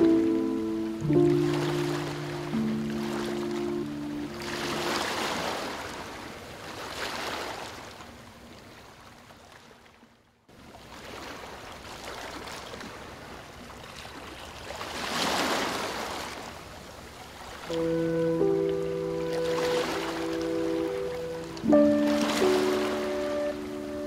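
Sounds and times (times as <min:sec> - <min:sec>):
ocean waves rushing surf: 0:00.0 - 0:07.8, 0:17.7 - 0:24.0.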